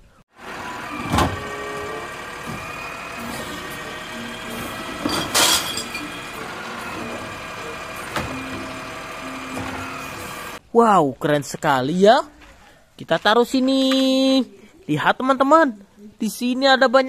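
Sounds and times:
garbage truck running: 0:00.3 - 0:10.6
hydraulic arm lifting cart: 0:00.4 - 0:10.6
trash cart clattering: 0:00.4 - 0:10.6.

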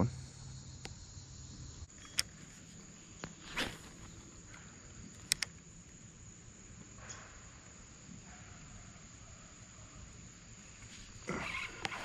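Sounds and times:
insects droning: 0:00.0 - 0:12.0
fishing rod swish: 0:03.4 - 0:04.1.

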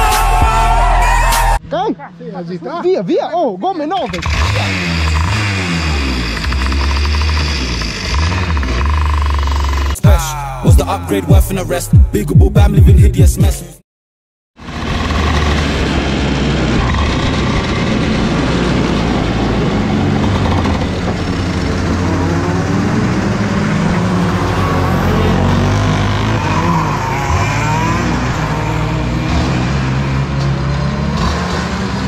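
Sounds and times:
go-kart engine running: 0:04.0 - 0:10.0, 0:14.6 - 0:32.0.

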